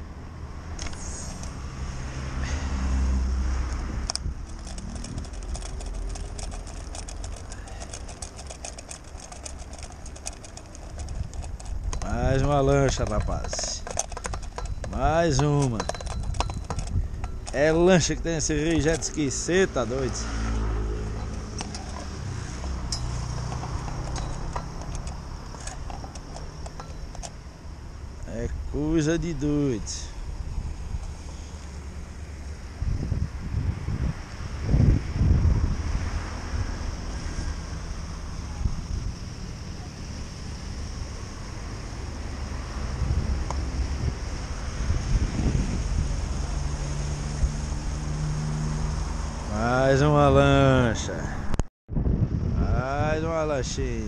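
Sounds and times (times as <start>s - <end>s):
motorboat engine rumble: 0.8s - 28.9s.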